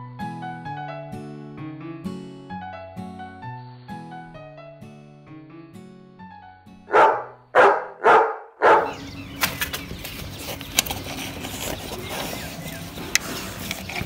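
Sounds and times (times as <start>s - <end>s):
soft piano-like music: 0.0s - 8.3s
dog barking: 6.9s - 9.0s.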